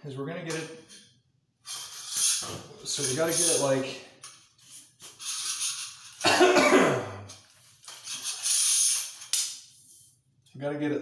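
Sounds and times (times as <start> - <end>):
metal sliding on curtain rod: 1.7 - 6.2
man coughing: 6.2 - 7.3.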